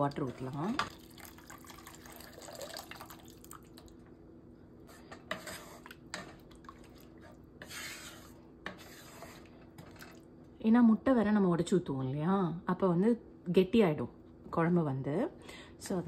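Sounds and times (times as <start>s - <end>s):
liquid slopping in a pot: 0.0s - 4.1s, 4.9s - 10.3s
faint steady hum: 0.0s - 16.0s
spatula tapping and scraping pot: 5.0s - 6.5s, 7.2s - 10.0s.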